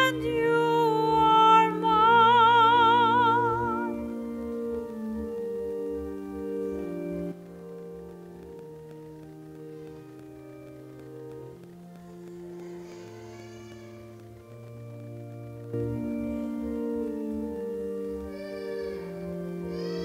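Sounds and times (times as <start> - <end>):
person singing with vibrato: 0.0 - 4.0, 18.0 - 20.0
organ chords: 0.0 - 20.0.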